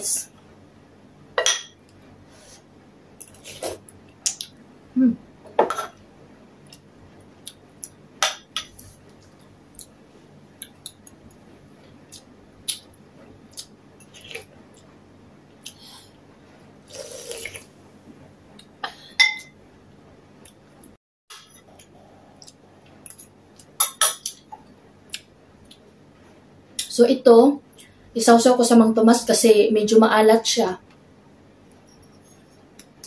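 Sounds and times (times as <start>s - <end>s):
slurping soup: 16.9s - 17.7s.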